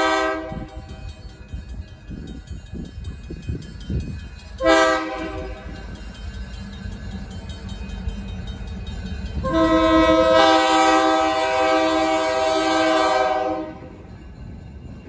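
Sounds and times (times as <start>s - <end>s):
locomotive air horn chord: 0.0s - 0.9s, 4.6s - 5.7s, 9.4s - 13.9s
locomotive engine rumbling: 0.0s - 15.0s.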